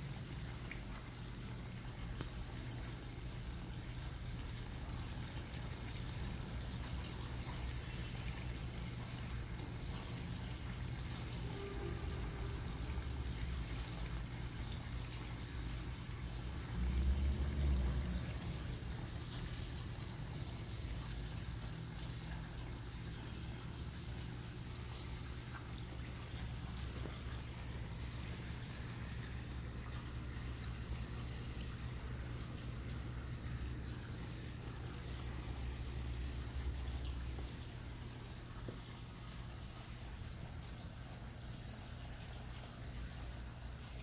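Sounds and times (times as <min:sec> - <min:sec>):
steady low hum: 0:00.0 - 0:44.0
water trickling and splashing: 0:00.0 - 0:44.0.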